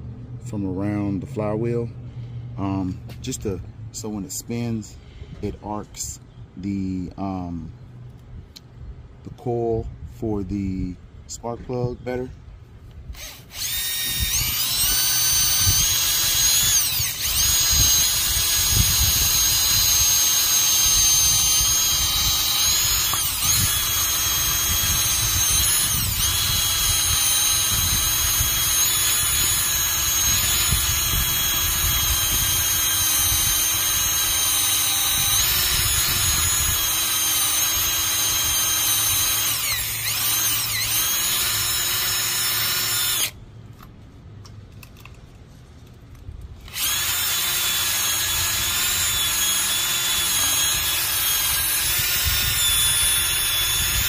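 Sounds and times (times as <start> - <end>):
drill wire brush scrubbing metal: 13.2 - 43.3, 46.7 - 54.0.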